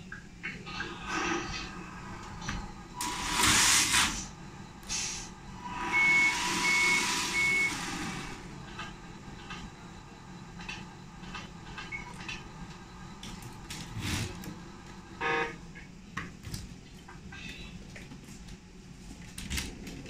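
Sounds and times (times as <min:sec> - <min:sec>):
room noise: 0:00.0 - 0:20.0.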